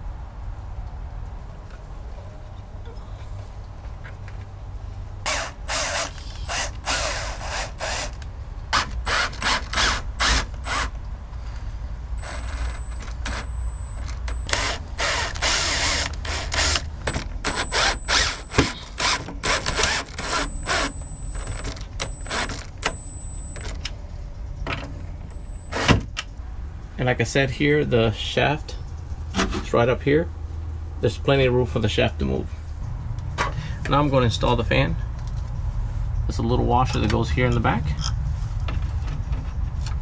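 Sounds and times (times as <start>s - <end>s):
cordless drill driving screws: 5.3s - 11.0s, 12.2s - 22.7s.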